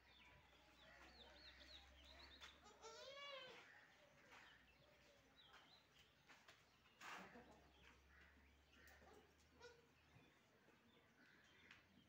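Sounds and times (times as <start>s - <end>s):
goat kid bleating: 2.6s - 3.6s.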